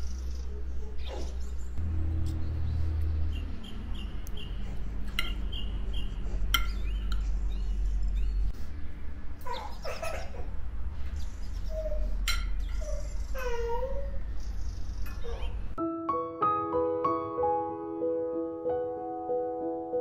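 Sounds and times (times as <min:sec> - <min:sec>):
high chirping calls: 0:03.2 - 0:08.5
cutlery clinking on ceramic plate: 0:12.2 - 0:12.9.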